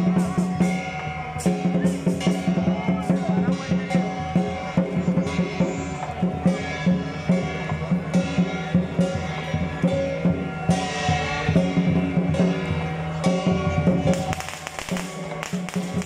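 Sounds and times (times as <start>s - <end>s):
ringing metal percussion: 0.0s - 16.0s
barrel drum beating: 11.6s - 16.0s.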